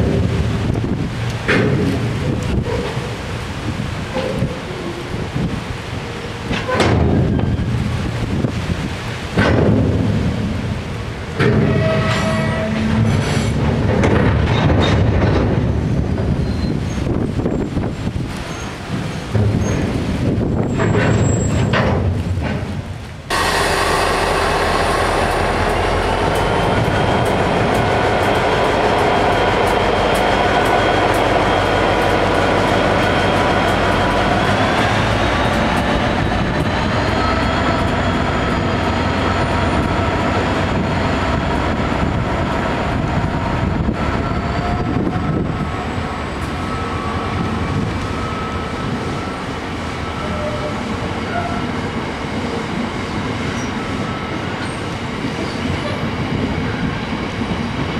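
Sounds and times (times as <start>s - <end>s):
diesel locomotive engine passing: 0.0s - 57.9s
freight wagons rumbling and clattering: 0.0s - 57.9s
wheels squealing: 18.4s - 21.8s.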